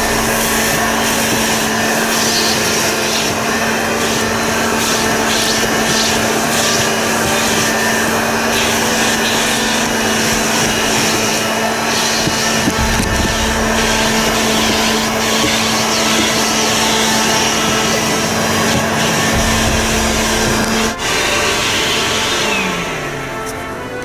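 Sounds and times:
vacuum cleaner running: 0:00.0 - 0:23.9.

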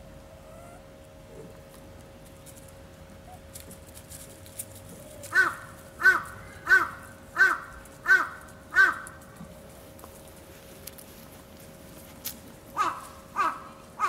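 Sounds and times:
crow cawing: 0:05.3 - 0:09.2, 0:12.8 - 0:14.0.

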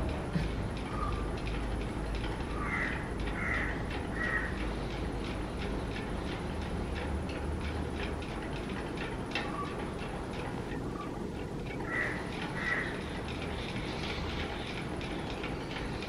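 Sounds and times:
crow cawing: 0:02.6 - 0:04.5, 0:11.9 - 0:12.9.

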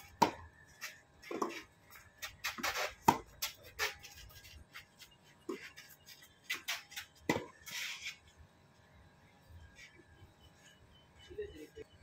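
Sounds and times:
tennis ball bounces: 0:00.0 - 0:00.5, 0:02.4 - 0:03.6, 0:06.5 - 0:07.5.

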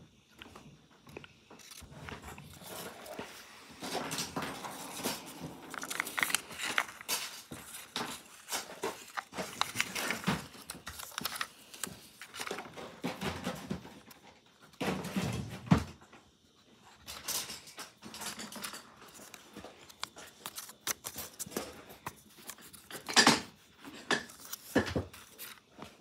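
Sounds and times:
paper slips rustling: 0:02.5 - 0:13.0.

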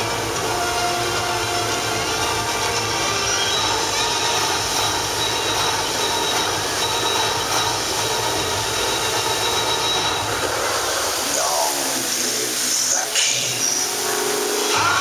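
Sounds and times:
fountain jets spraying: 0:00.0 - 0:15.0.

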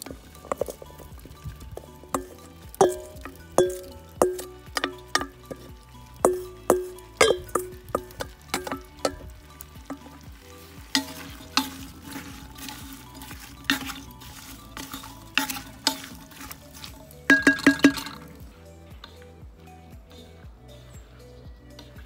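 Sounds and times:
food sizzling in butter: 0:00.0 - 0:17.5
utensil scraping metal pot: 0:00.0 - 0:18.4.

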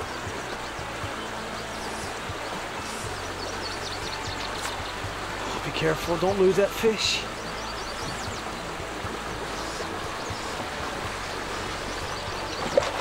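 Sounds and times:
rushing water: 0:00.0 - 0:13.0.

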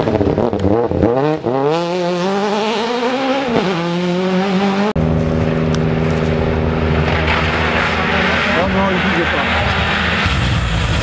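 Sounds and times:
car engine accelerating hard: 0:00.0 - 0:11.0
steady engine drone: 0:02.8 - 0:11.0.

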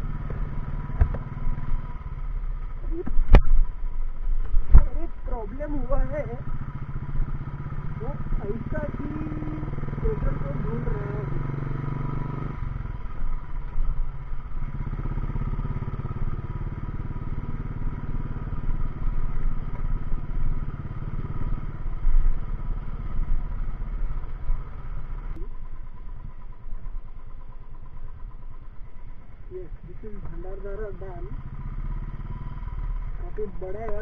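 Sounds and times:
motorcycle engine running: 0:00.0 - 0:34.0.

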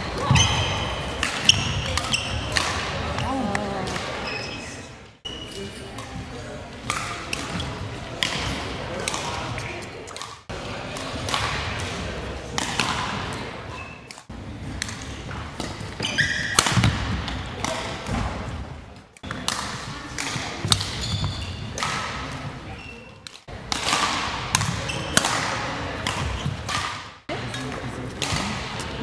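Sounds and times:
faint voices: 0:02.8 - 0:13.8
shoe squeaks on wooden floor: 0:04.2 - 0:05.6, 0:21.0 - 0:21.6.

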